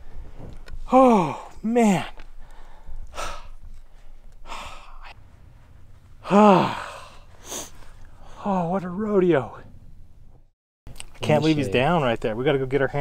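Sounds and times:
man breathing out hard: 0.8 - 5.2, 6.2 - 8.5
loud sigh falling in pitch: 6.2 - 8.6.

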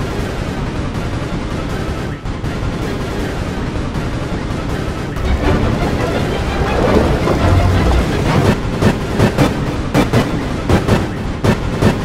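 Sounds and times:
continuous rushing noise: 0.0 - 12.0
loud rapid thuds: 4.8 - 12.0.

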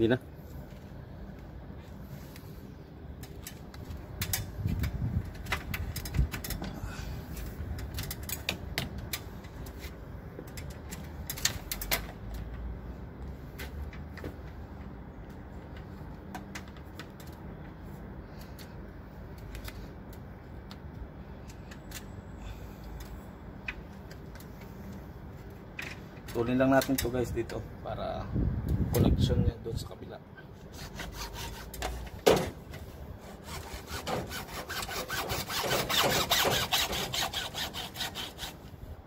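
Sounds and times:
steady low rumble: 0.0 - 16.2, 27.2 - 30.4
knocks and clicks of handled pipe: 25.7 - 27.2.

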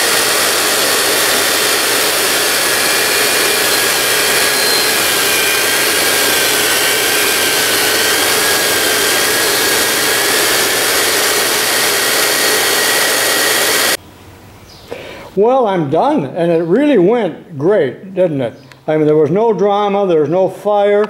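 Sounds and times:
grinder hissing with high whine: 0.0 - 14.0.

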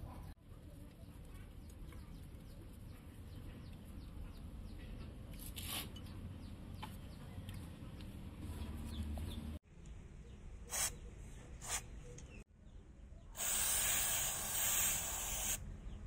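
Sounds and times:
aerosol spray hisses: 13.4 - 15.6.

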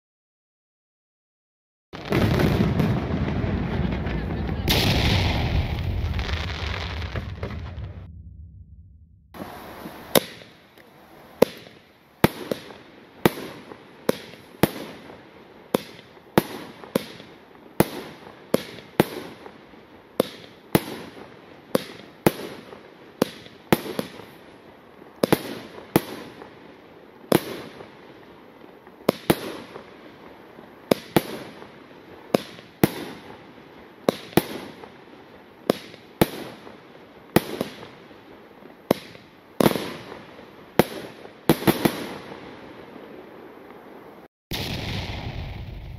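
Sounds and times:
firework bangs: 2.0 - 19.6, 20.2 - 24.3, 27.3 - 28.0, 29.0 - 35.0, 38.8 - 43.5, 44.5 - 45.9
firework hiss: 9.4 - 17.2.

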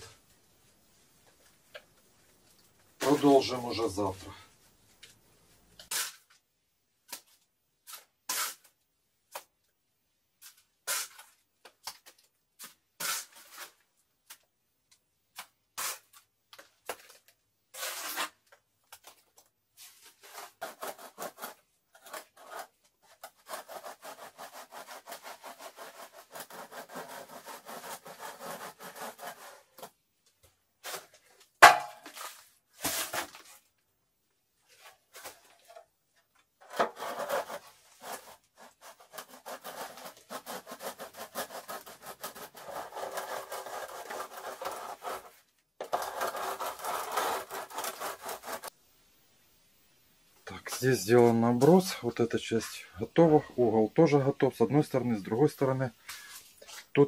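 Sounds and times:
hand tools scraping wet plaster: 7.9 - 8.7, 10.4 - 11.3, 12.0 - 13.8, 17.7 - 18.4, 19.9 - 29.9, 36.6 - 48.8
sharp knock: 31.6 - 32.0.

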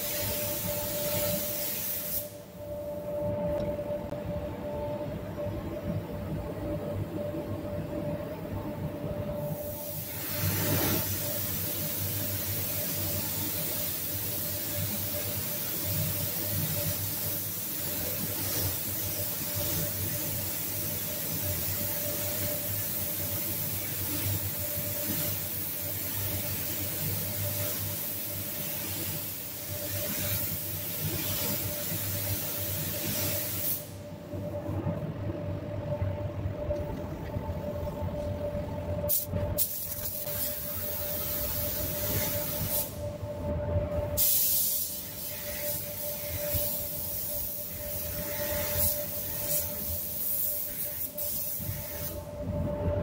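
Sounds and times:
steady hum: 0.0 - 53.0
paint spray gun hissing: 39.1 - 42.9, 44.2 - 52.2.

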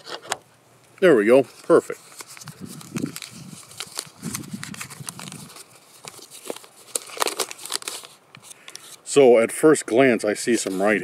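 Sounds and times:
paper crinkling: 1.3 - 9.1, 10.5 - 11.0.

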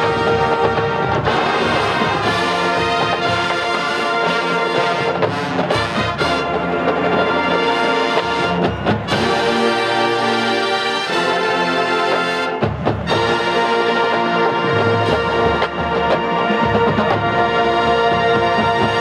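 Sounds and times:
marching band brass chords: 0.0 - 19.0.

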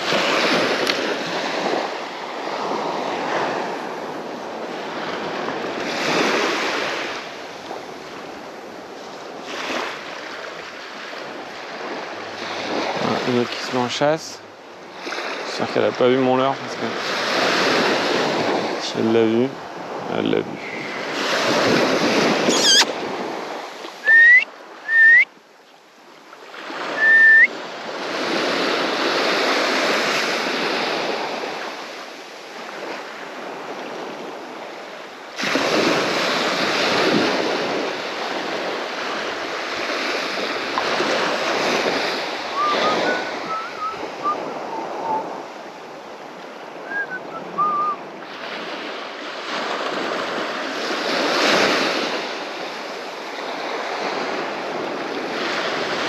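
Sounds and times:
waves washing up a sandy beach: 0.0 - 56.0
loud rising whistled notes: 24.0 - 25.3, 27.0 - 27.5, 42.6 - 45.2, 46.9 - 48.0.

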